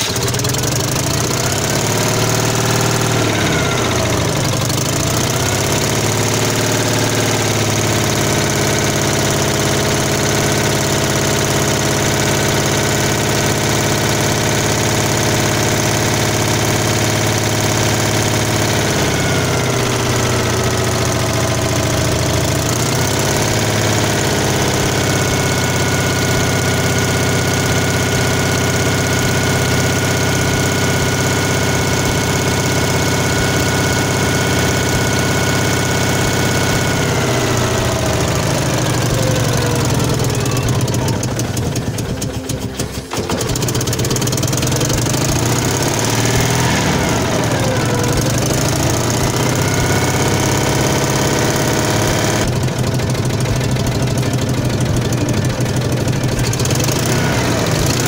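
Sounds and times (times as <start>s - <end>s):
car engine running: 0.0s - 58.0s.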